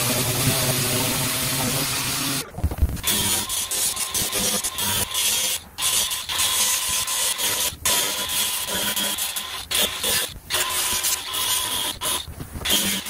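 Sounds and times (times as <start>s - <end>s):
power sander on fiberglass: 0.0s - 2.4s.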